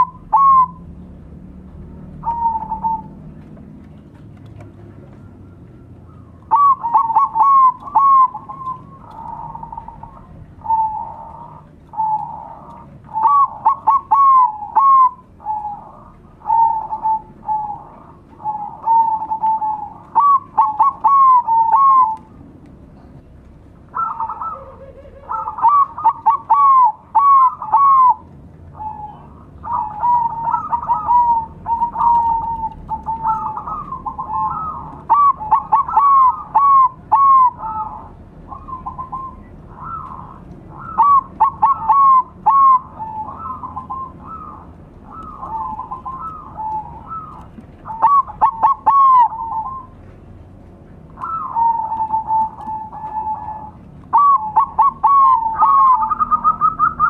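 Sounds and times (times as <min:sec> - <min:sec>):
doves cooing: 0:00.0 - 0:57.0.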